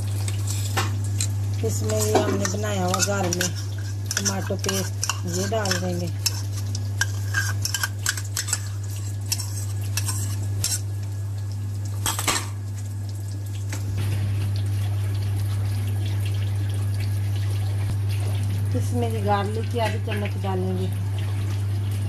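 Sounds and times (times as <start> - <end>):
utensil scraping a wok: 1.7 - 10.9.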